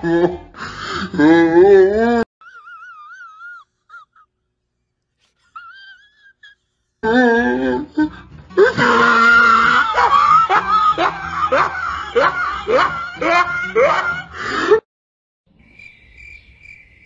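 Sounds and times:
person screaming: 8.6s - 14.8s.

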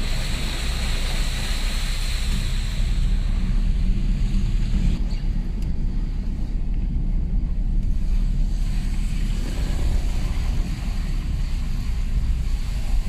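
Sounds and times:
engine and tyre rumble: 0.0s - 13.0s
water hissing under wheels: 0.0s - 13.0s.

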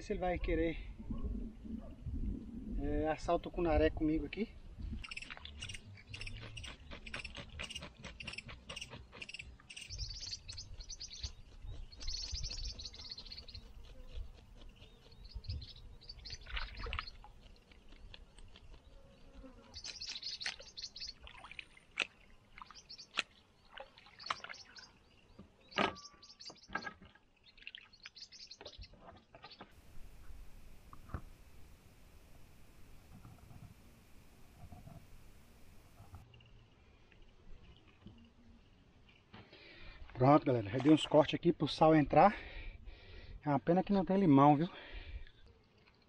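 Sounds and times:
small water splashes: 5.0s - 5.8s, 16.3s - 18.0s, 19.8s - 25.4s, 27.2s - 28.8s
birds chirping: 5.0s - 21.2s, 22.6s - 36.2s.

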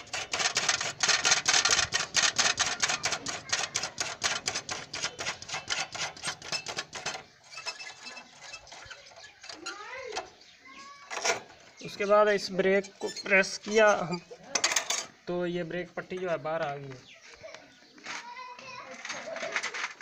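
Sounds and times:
rapid metallic clicking: 0.0s - 9.7s.

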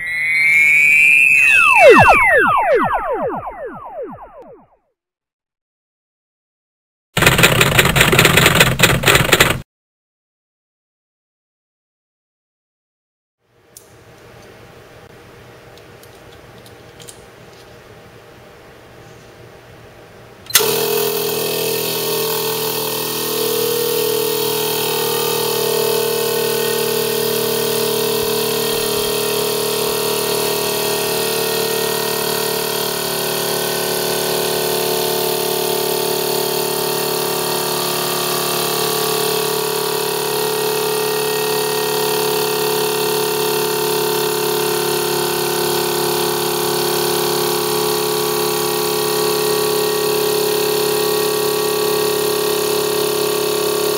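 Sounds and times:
air compressor humming: 20.5s - 47.1s.

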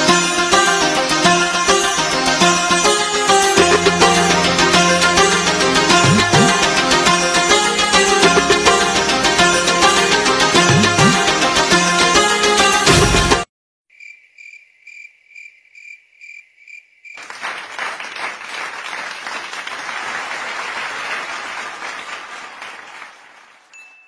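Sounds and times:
music: 0.0s - 13.5s
cricket chirping: 13.9s - 17.2s
applause: 17.2s - 24.0s.

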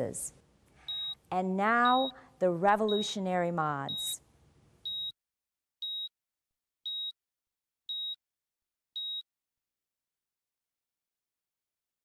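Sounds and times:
high-pitched heart monitor beeps: 0.9s - 1.2s, 1.8s - 2.2s, 2.9s - 3.1s, 3.9s - 4.2s, 4.9s - 5.2s, 5.8s - 6.1s, 6.9s - 7.2s, 7.9s - 8.2s, 9.0s - 9.2s.

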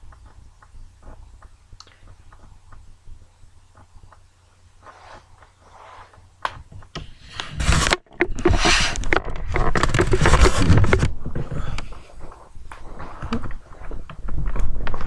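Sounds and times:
handling noise on microphone: 4.8s - 15.0s.

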